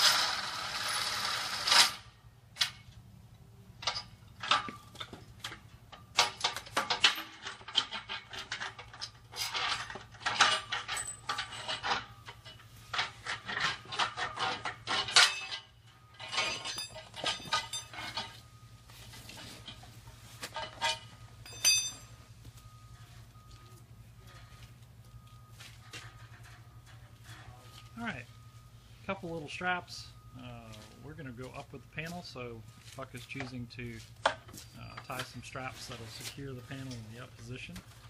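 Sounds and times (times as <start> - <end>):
metal rods clinking and rattling: 3.8 - 23.5, 24.2 - 28.0.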